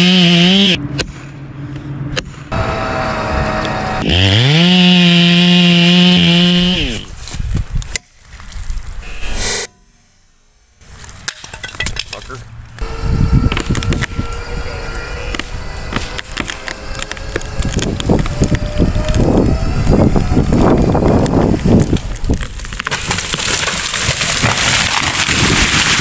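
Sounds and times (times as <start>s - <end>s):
steady motor drone: 0.0s - 7.1s, 12.5s - 21.7s
tree trunk wood cracking: 15.3s - 26.0s.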